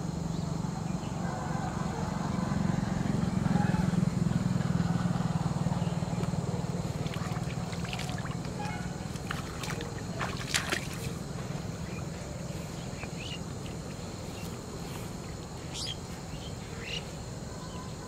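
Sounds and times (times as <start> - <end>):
low steady drone: 0.0 - 18.0
water sloshing and trickling: 6.2 - 16.3
small splashes: 6.7 - 11.3.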